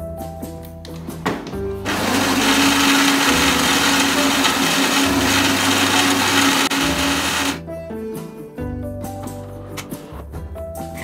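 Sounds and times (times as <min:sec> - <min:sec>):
coffee grinder grinding beans: 0:01.9 - 0:07.6.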